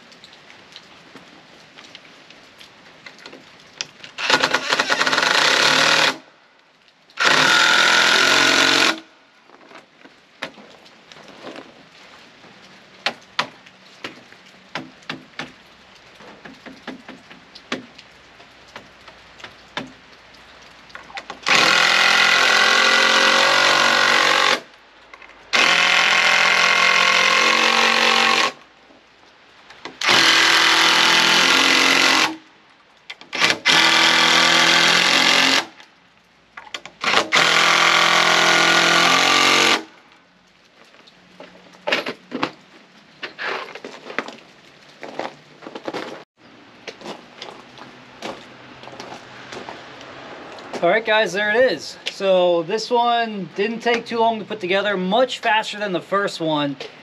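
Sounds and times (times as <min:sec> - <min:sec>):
impact driver driving screws: 0:04.2 - 0:06.2, 0:21.4 - 0:24.6, 0:25.6 - 0:28.6, 0:30.0 - 0:32.4, 0:33.3 - 0:35.7, 0:37.0 - 0:39.8.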